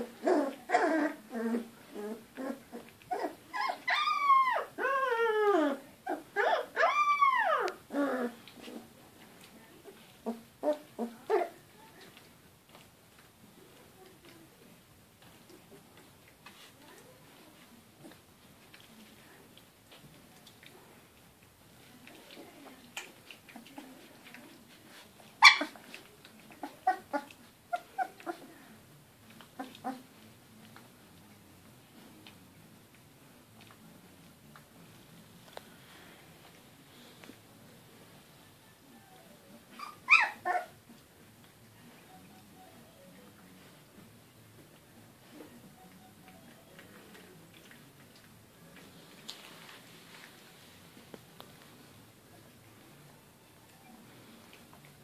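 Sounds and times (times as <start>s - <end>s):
puppy whining and crying: 0.0s - 8.8s, 25.4s - 25.9s, 26.6s - 28.5s, 38.9s - 40.8s.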